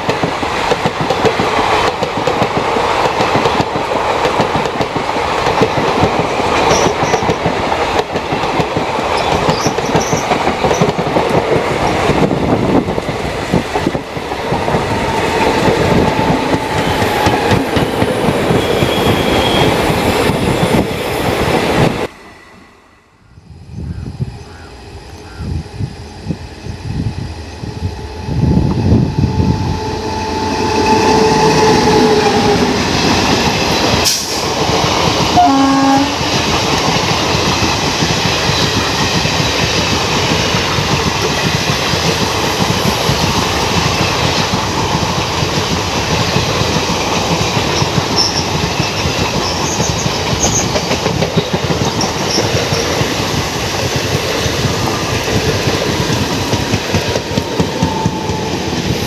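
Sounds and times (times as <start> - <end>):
wheels clickety-clack on rails: 0.0 - 22.0, 31.2 - 59.0
train rushing past: 0.0 - 59.0
locomotive horn: 29.1 - 32.8, 35.4 - 36.3.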